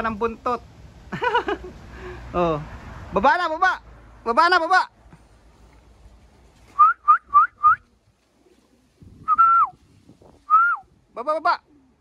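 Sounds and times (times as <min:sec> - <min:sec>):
person whistling: 0:06.8 - 0:07.8, 0:09.3 - 0:09.8, 0:10.5 - 0:10.8.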